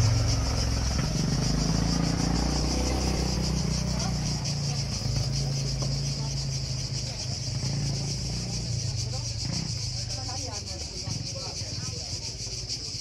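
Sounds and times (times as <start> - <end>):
cicadas singing: 0.0 - 13.0.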